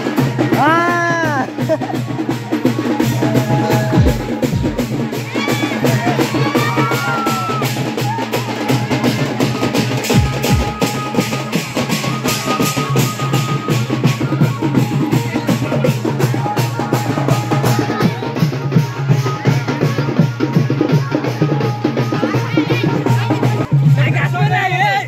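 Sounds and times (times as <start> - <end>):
dance music over loudspeakers: 3.9 - 4.8.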